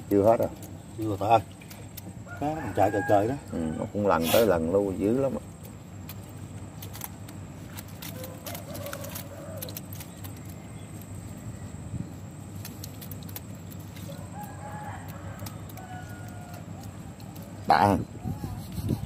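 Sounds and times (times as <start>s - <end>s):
steady low hum: 0.0s - 19.0s
distant rooster crowing: 2.2s - 4.2s, 8.1s - 9.9s, 14.0s - 17.1s.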